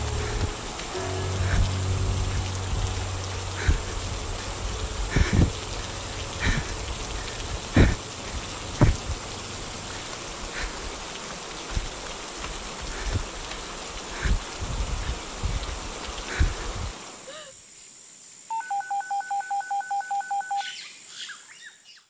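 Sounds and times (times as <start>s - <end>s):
rain hissing on foliage: 0.0s - 18.5s
footsteps on trail: 6.4s - 9.3s.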